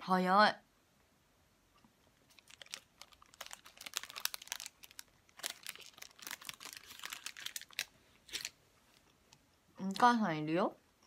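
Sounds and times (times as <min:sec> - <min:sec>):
plastic wrapper crinkling: 0:02.2 - 0:10.1.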